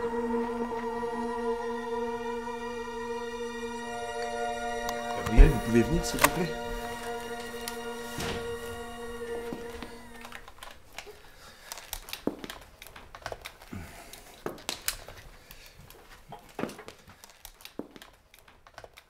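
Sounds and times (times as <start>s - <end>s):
held musical chord: 0.0s - 11.0s
high heels clicking on tiles: 11.8s - 19.0s.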